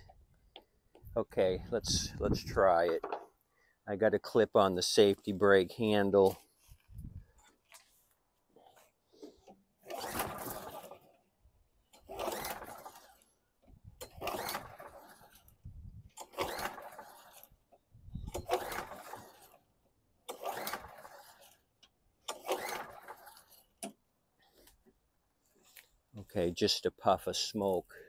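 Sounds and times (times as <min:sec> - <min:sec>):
mower engine pull-start cranking: 0:09.1 - 0:25.0.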